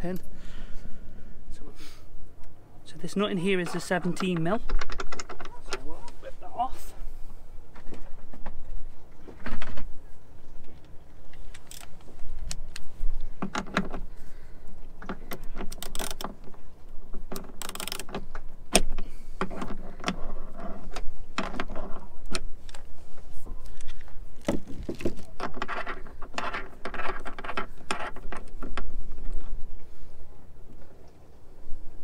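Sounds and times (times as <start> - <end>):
ratchet wrench clicking: 17.6 - 18.0.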